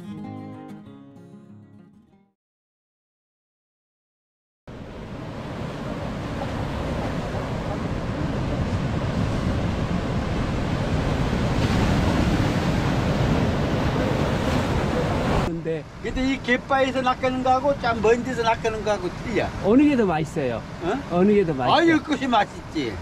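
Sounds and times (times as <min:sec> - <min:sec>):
surf breaking over rocks: 0:04.8 - 0:22.5
wind buffeting microphone: 0:05.0 - 0:15.5.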